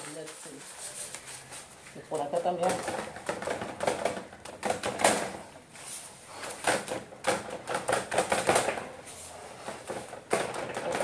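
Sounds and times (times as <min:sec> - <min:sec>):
paper rustling: 0:00.0 - 0:07.0
clicks and taps: 0:06.4 - 0:08.9.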